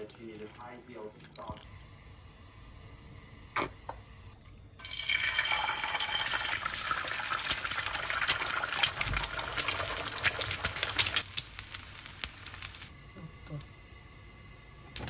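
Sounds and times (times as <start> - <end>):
eggs sizzling in oil: 4.8 - 13.0
oil crackling pops: 6.6 - 12.9.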